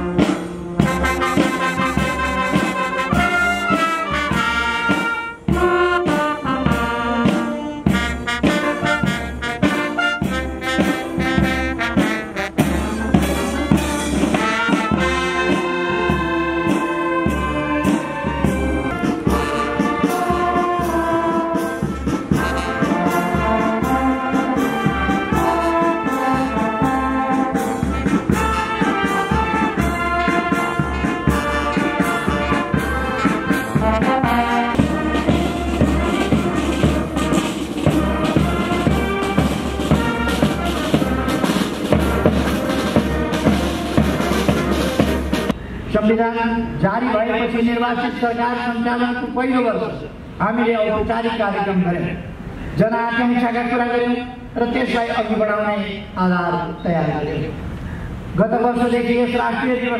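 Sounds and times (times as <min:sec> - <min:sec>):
steady drum beat: 0:00.0 - 0:45.6
brass band playing: 0:00.0 - 0:46.0.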